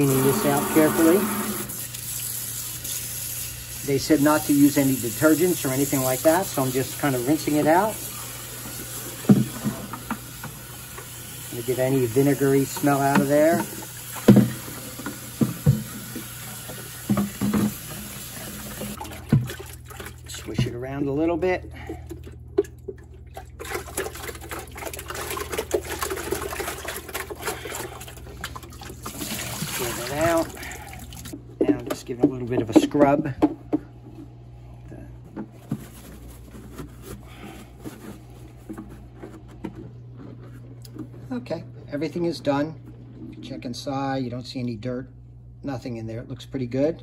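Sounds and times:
towel rubbing plastic tank: 0.0 - 1.8
faucet water running into tank: 0.0 - 20.6, 21.8 - 31.8.

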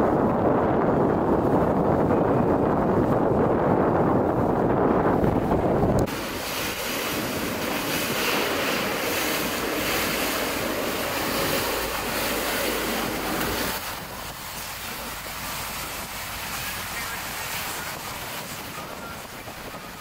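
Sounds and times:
wind buffeting microphone: 0.0 - 20.0
rushing water: 4.4 - 20.0.

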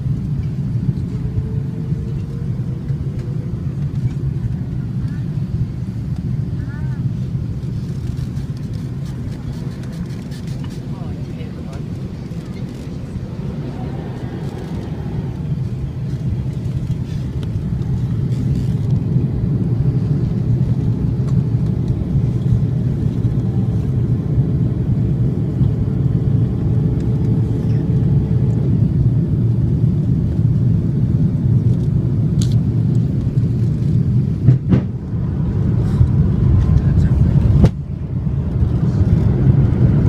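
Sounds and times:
airliner cabin engine drone: 0.0 - 40.0.

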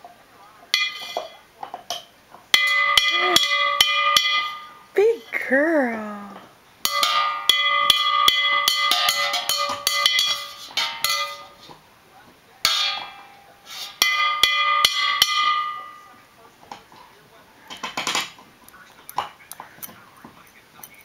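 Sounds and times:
metal spoon banging on pot: 0.7 - 5.3, 6.4 - 11.8, 12.6 - 16.1.

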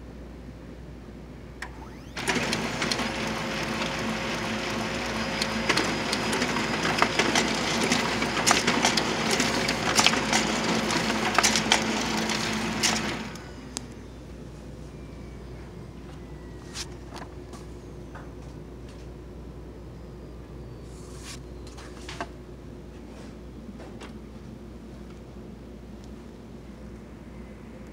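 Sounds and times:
printer clicks: 1.6 - 13.5
laser printer printing: 1.6 - 13.8.

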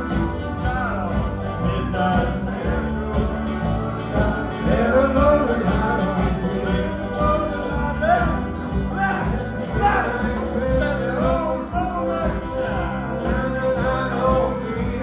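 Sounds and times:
guitars strumming over a beat: 0.0 - 15.0
person singing: 0.0 - 15.0.

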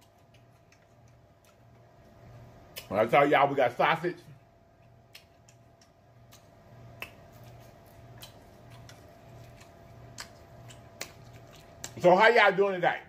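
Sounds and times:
mouth clicks and smacks: 0.0 - 1.9, 2.7 - 3.0, 4.8 - 12.0
quiet chewing: 0.0 - 3.0, 4.7 - 12.0.

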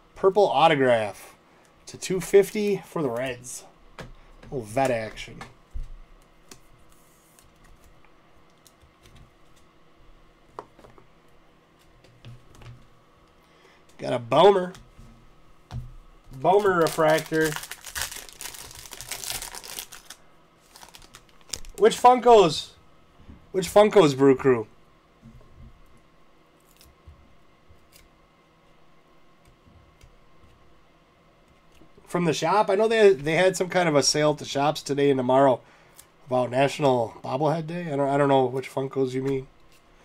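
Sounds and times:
trading cards clicking and rustling: 16.3 - 22.0.

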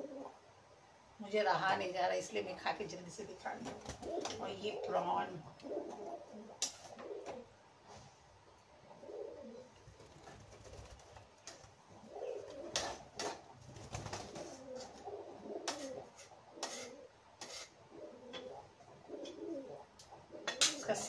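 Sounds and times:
pigeons cooing: 0.0 - 0.5, 3.6 - 7.6, 8.8 - 21.0.

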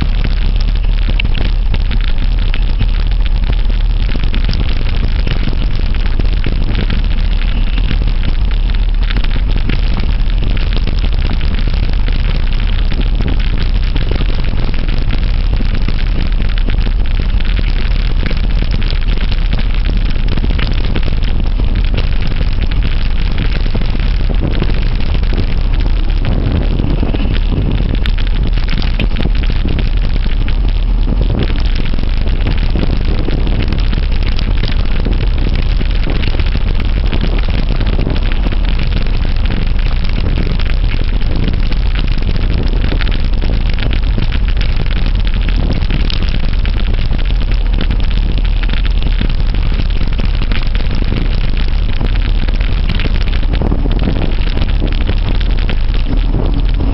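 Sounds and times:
wind buffeting microphone: 0.0 - 56.9.

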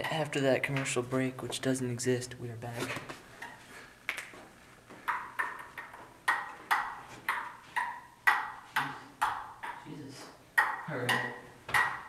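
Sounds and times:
ping-pong ball clicking on table: 5.1 - 9.8, 10.6 - 12.0.

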